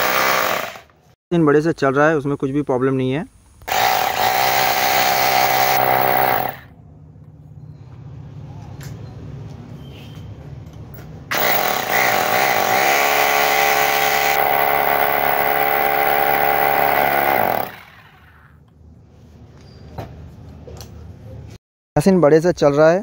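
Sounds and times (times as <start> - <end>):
hammer drill motor running: 3.7 - 6.6, 11.3 - 18.4.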